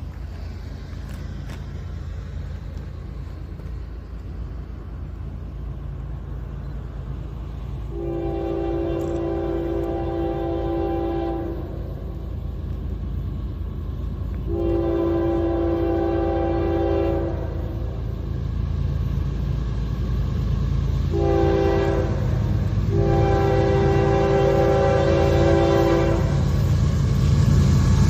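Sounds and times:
low rumble of train: 0.0 - 28.0
locomotive air horn blasts: 7.9 - 12.0, 14.5 - 18.0, 21.1 - 26.5.

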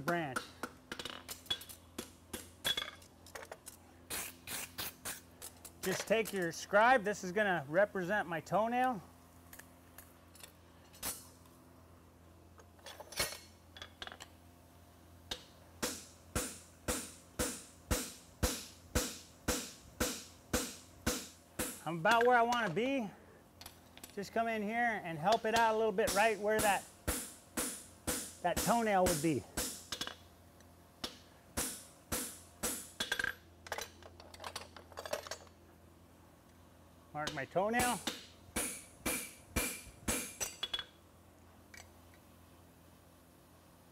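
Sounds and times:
hammer striking metal: 15.8 - 22.3, 25.3 - 30.1, 37.8 - 40.9
hammer striking hot metal: 25.6 - 29.9, 37.8 - 40.5.

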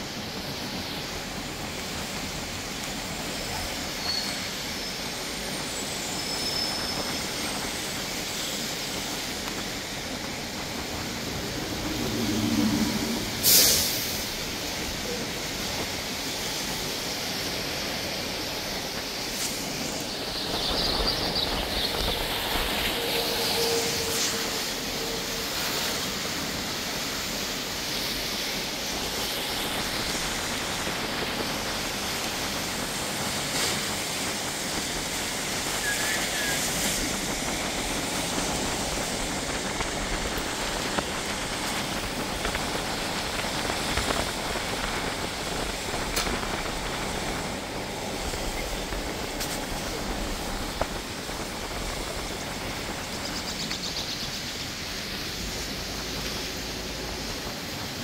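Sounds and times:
heavy rain falling: 0.0 - 58.0
brief high squeak: 4.0 - 4.5.

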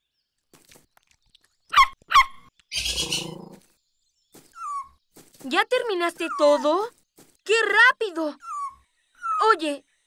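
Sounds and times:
cartoon animal squeaky calls: 1.8 - 3.4, 8.4 - 9.5.

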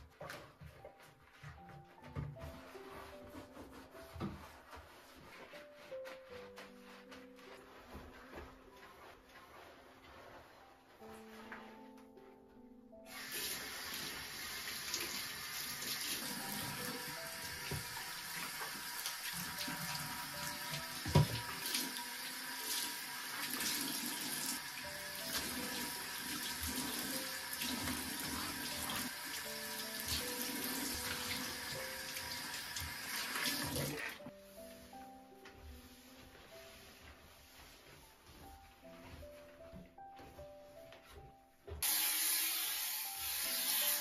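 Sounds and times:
basin being scrubbed: 1.0 - 11.8, 13.1 - 35.1
tap water running into basin: 13.1 - 34.2.

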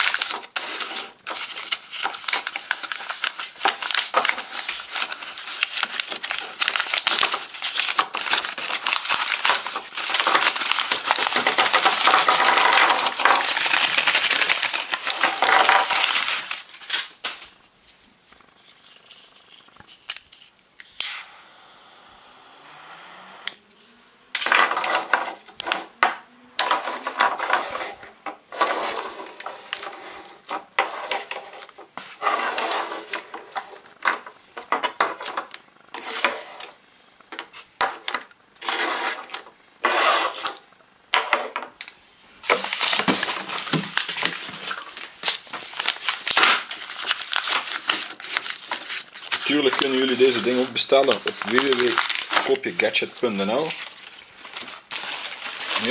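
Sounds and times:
plastic rustling: 0.0 - 20.9, 24.4 - 40.8, 41.4 - 55.9
paper crinkling and tearing: 0.0 - 21.2, 42.4 - 55.9.

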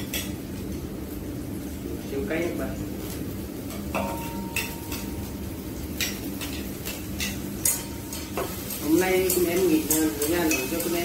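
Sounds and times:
steady low hum: 0.0 - 11.0
chopsticks clinking on a plate: 6.0 - 11.0.

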